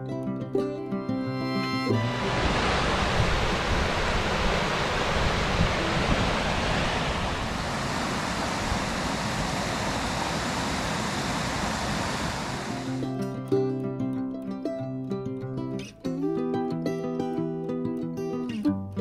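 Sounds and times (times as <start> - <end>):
waterfall rushing into pool: 2.0 - 13.1.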